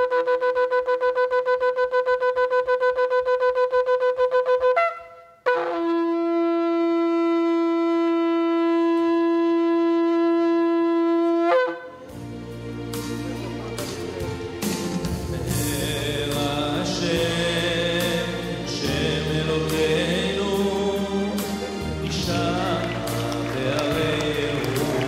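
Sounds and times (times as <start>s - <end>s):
shofar blowing: 0.0s - 12.2s, 21.2s - 25.0s.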